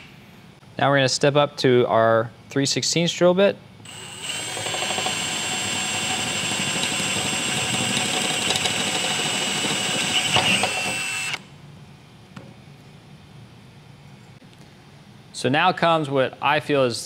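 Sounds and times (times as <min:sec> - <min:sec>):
drill whining cutting metal: 0:03.9 - 0:11.4.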